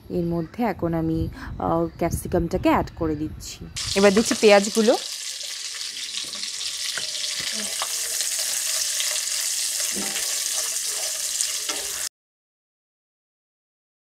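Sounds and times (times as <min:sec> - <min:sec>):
vegetables sizzling in oil: 0:03.8 - 0:12.1
wooden spatula scraping: 0:05.9 - 0:12.1.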